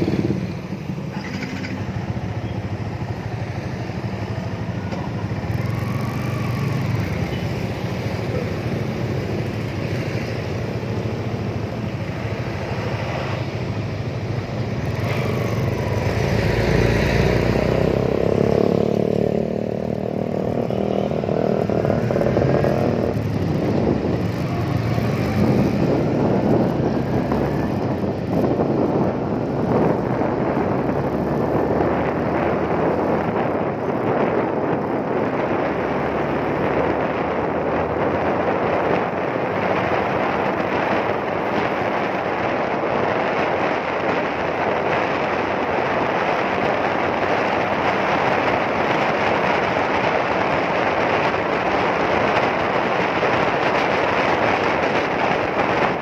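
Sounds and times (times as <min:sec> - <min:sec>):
loud wind noise booming: 0:20.1 - 0:56.0.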